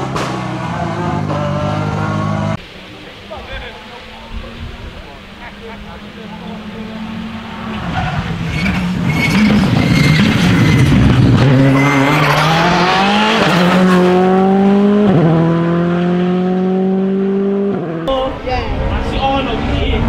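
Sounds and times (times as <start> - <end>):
rally car accelerating hard: 5.5 - 18.1.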